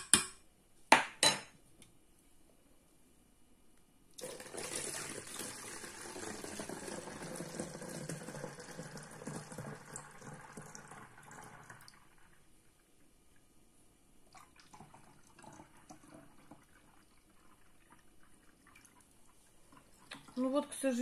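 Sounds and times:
liquid pouring into plastic bottle: 4.2s - 12.4s, 14.3s - 20.4s.

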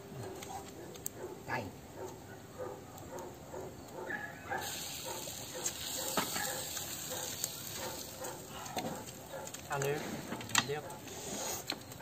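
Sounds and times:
meat sizzling in a frying pan: 4.6s - 8.5s.

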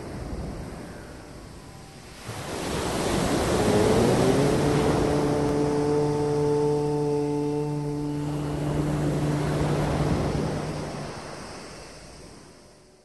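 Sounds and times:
ocean surf on beach: 0.0s - 13.0s
low droning tone: 2.7s - 12.6s.

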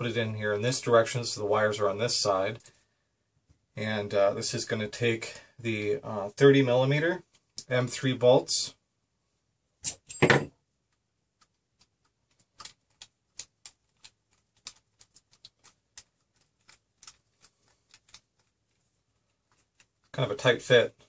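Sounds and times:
tools knocking on workbench: 10.2s - 10.5s.

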